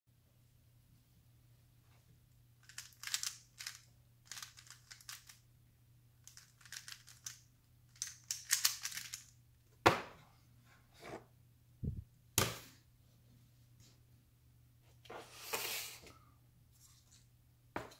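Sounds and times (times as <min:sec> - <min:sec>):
puzzle cube clicking rattles: 0:02.6 - 0:05.4, 0:06.3 - 0:09.3.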